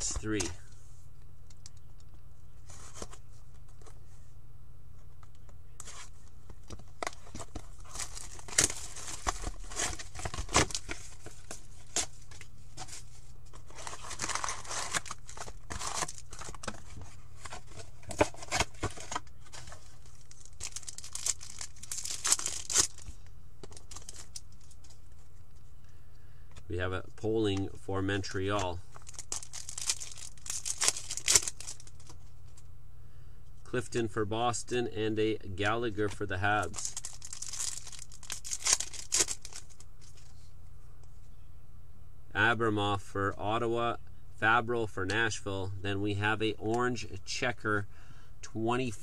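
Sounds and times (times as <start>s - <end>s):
foil packs crinkling: 7.0s - 24.8s, 28.9s - 32.2s, 36.6s - 39.8s
cardboard box tearing: 13.7s - 16.8s.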